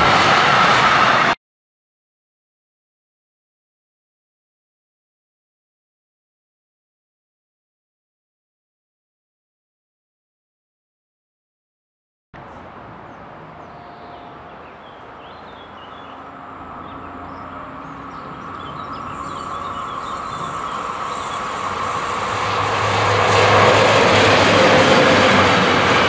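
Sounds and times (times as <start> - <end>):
freight train passing: 0.0 - 1.4, 12.4 - 26.0.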